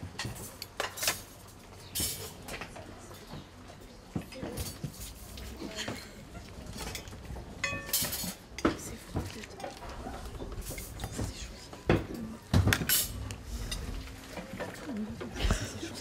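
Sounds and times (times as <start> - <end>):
dishes and cutlery clattering: 0.1 - 3.5, 4.1 - 16.0
glass ringing clink: 7.6 - 8.4.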